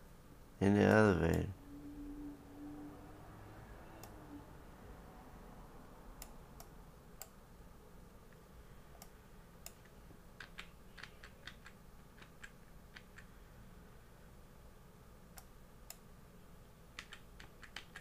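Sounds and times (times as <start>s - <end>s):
faint background noise: 0.0s - 18.0s
computer mouse clicks: 9.0s - 13.3s, 17.0s - 18.0s.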